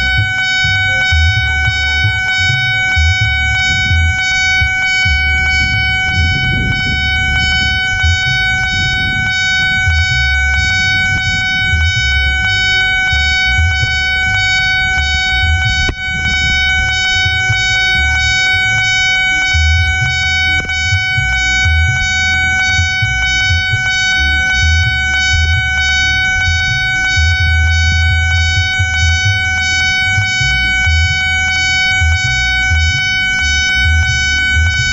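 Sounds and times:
level crossing alarm: 0.0s - 34.9s.

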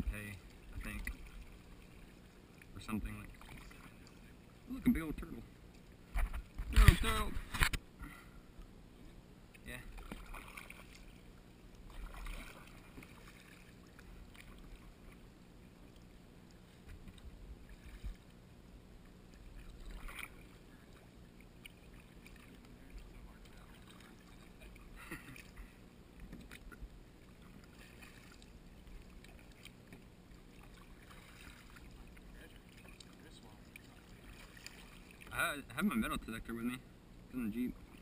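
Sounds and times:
paddle splashes and drips: 0.4s - 4.7s, 9.5s - 35.4s.

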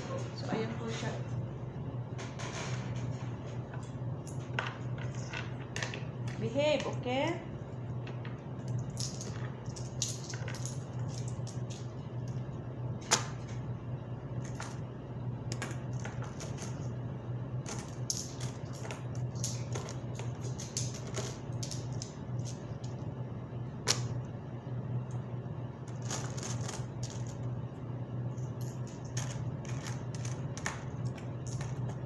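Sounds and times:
metal coins clinking: 8.7s - 11.9s, 17.6s - 22.7s, 25.9s - 27.4s, 28.5s - 32.0s.

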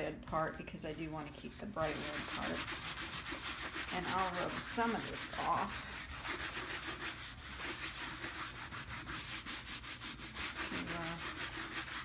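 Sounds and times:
rubbing strokes on a panel: 0.8s - 12.0s.

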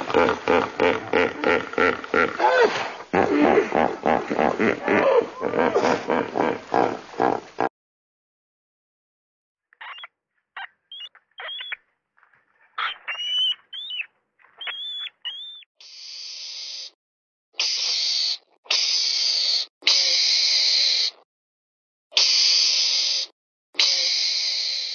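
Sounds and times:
rat squeaking: 9.8s - 11.8s, 12.8s - 15.7s
mongoose hissing: 14.8s - 17.0s, 17.6s - 21.2s, 22.1s - 24.9s.

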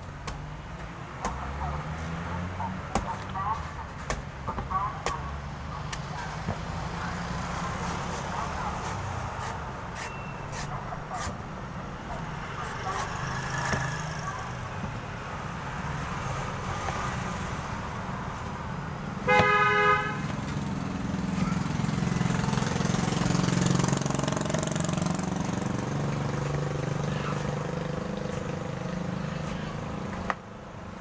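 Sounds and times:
street traffic hum: 0.0s - 31.0s
vehicle horn toot: 19.2s - 20.3s.

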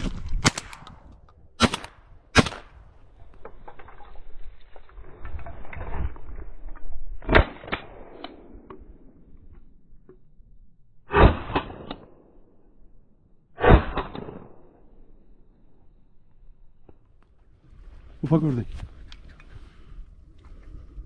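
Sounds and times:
shotgun shots: 0.0s - 0.9s, 1.6s - 2.8s, 13.6s - 14.6s.

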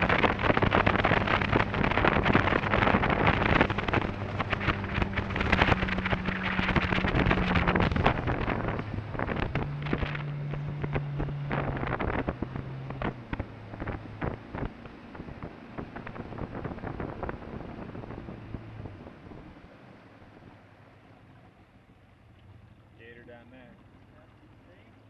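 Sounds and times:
wind on microphone: 0.0s - 19.7s
boat motor humming: 0.0s - 25.0s.

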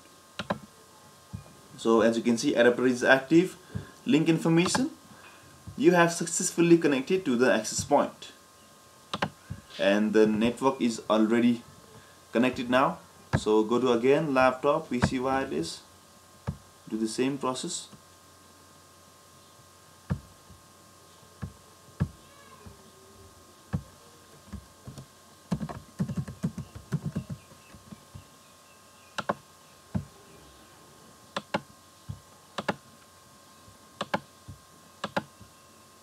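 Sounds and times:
faint steady hum: 0.0s - 36.0s
keyboard typing: 0.4s - 0.6s, 24.5s - 28.0s, 34.0s - 34.2s.

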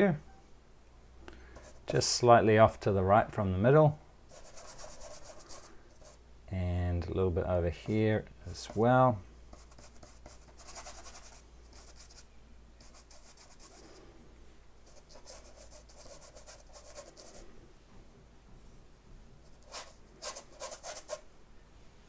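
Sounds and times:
brush scrubbing paint on canvas: 19.5s - 21.2s.

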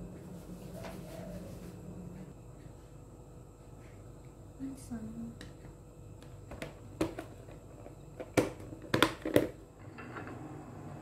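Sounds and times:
hard objects clicking and knocking: 6.5s - 9.6s.

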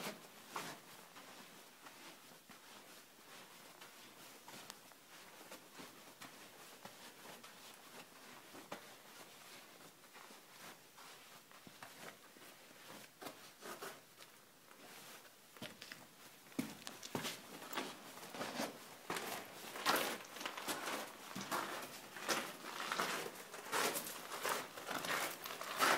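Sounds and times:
footsteps on sand and gravel: 16.6s - 25.9s.

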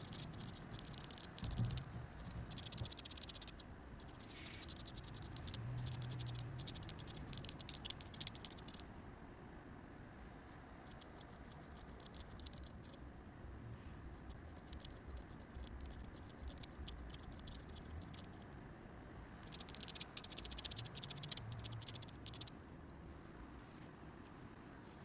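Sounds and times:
pen nib scratching on paper: 0.0s - 8.8s, 10.8s - 13.0s, 14.2s - 18.5s, 19.4s - 22.5s.

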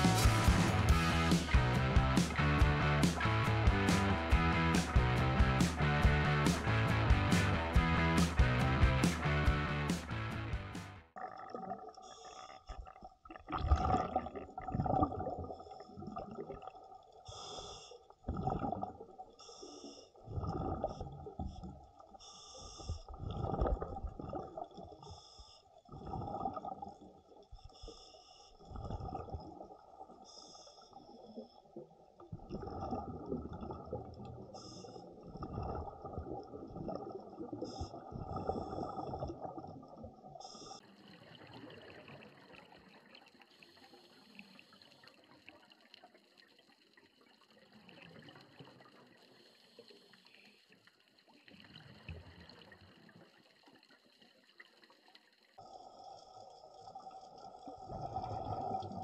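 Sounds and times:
exhaled bubbles rushing: 12.7s - 16.8s, 18.2s - 19.2s, 20.2s - 21.5s, 23.1s - 25.0s, 25.9s - 27.2s, 28.6s - 30.0s, 32.3s - 40.2s, 40.8s - 43.2s, 55.6s - 59.0s
faint water hiss: 17.1s - 18.1s, 19.4s - 20.2s, 21.6s - 23.1s, 25.0s - 25.9s, 30.0s - 31.8s, 34.3s - 35.4s, 40.3s - 57.9s
diver breathing through regulator: 17.3s - 18.1s, 22.2s - 23.1s, 27.6s - 28.8s, 30.2s - 31.1s, 34.5s - 35.2s.

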